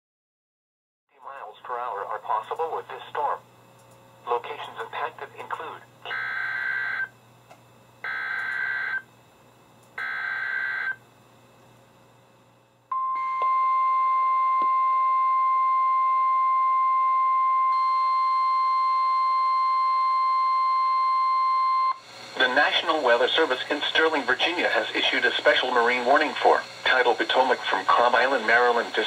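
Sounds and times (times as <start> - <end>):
warning alarm tone: 6.1 - 7.1, 8.0 - 9.1, 10.0 - 11.0, 12.9 - 22.0.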